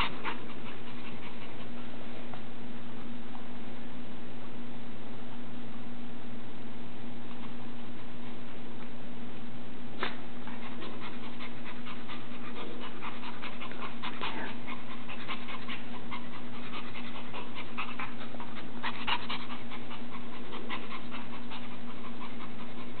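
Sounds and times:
puppy panting quickly: 0:00.0 - 0:02.3, 0:10.4 - 0:23.0.

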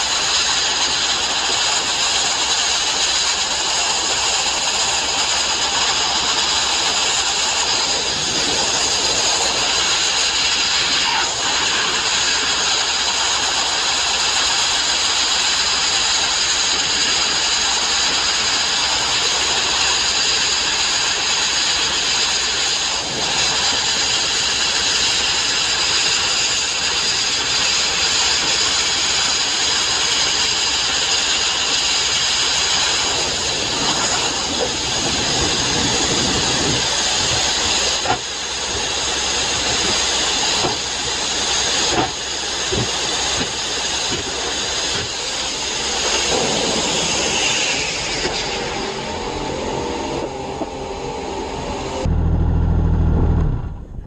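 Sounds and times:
sandblasting nozzle hiss: 0:00.0 - 0:50.1.

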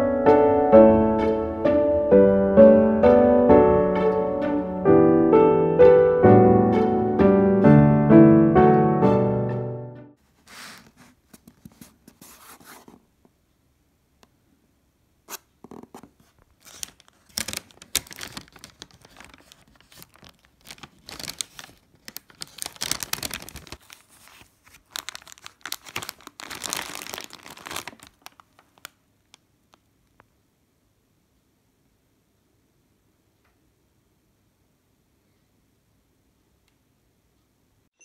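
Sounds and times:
plastic bag crinkling: 0:16.2 - 0:29.9.

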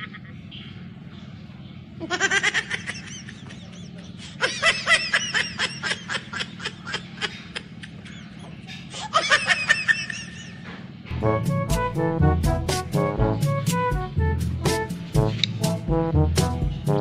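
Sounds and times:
high-pitched rhythmic laughter: 0:00.0 - 0:00.6, 0:02.0 - 0:10.7
steady low hum: 0:00.0 - 0:17.0.

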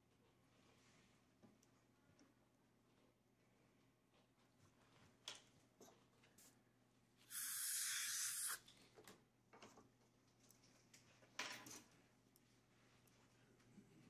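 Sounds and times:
dental air syringe hissing: 0:07.2 - 0:08.6.

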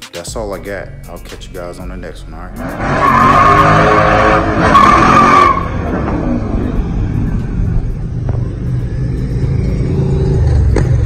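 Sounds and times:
car exhaust rumbling low: 0:02.5 - 0:11.0.

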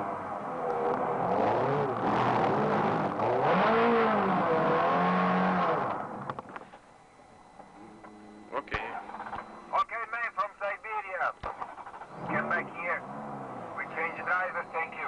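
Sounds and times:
sports car engine revving: 0:00.0 - 0:06.4, 0:11.7 - 0:15.0
road and tyre noise: 0:00.0 - 0:06.7, 0:11.4 - 0:15.0.

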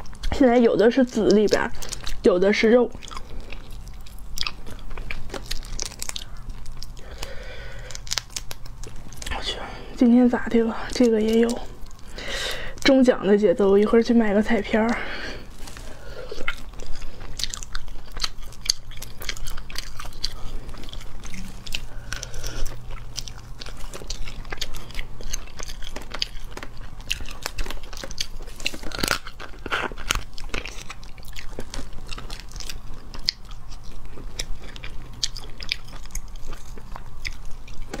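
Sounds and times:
chewing: 0:00.0 - 0:09.6, 0:10.4 - 0:12.9, 0:14.7 - 0:38.0
shells cracking and crunching: 0:03.0 - 0:09.4, 0:14.9 - 0:38.0.

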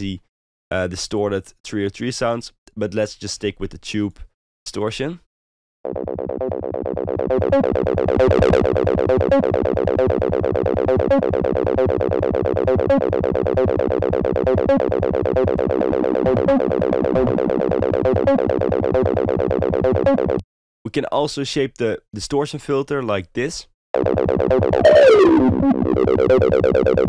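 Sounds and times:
acid synth bassline: 0:05.9 - 0:20.4, 0:24.0 - 0:27.0.

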